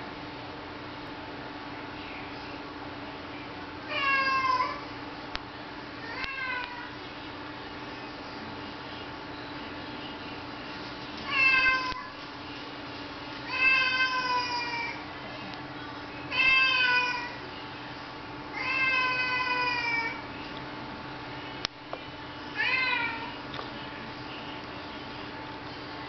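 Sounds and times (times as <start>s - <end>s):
cat meowing: 3.9s - 4.8s, 6.0s - 7.0s, 11.3s - 12.1s, 18.6s - 20.2s.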